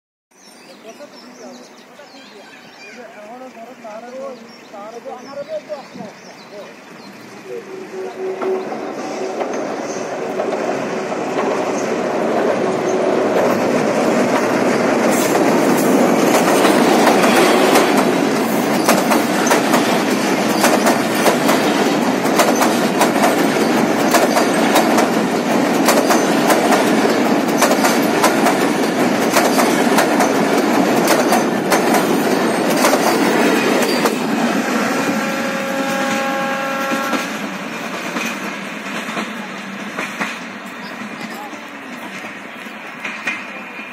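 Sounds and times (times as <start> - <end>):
heavy rumble of train coaches: 0.4 - 43.9
train horn: 7.5 - 10.4, 34.4 - 37.5
train wheels clattering over rail joints: 8.3 - 34.4, 35.6 - 43.8.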